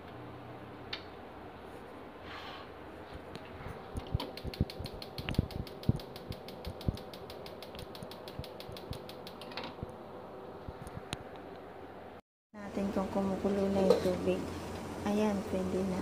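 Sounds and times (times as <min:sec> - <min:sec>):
steady hum: 0:02.8 - 0:16.0
burner igniter clicking: 0:04.0 - 0:09.9.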